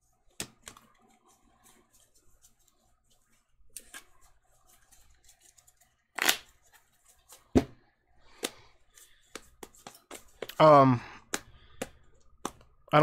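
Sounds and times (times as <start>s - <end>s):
cards rustling: 0.3s - 7.5s, 8.3s - 13.0s.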